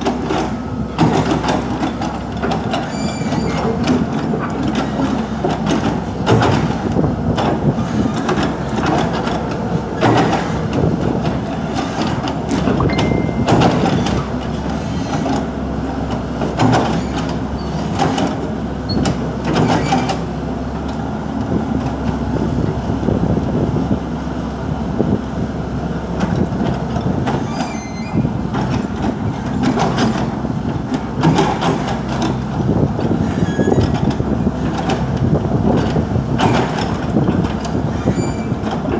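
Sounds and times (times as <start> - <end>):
excavator engine rumble: 0.0 - 38.9
sharp knocks and clunks: 3.5 - 9.4, 10.0 - 14.3.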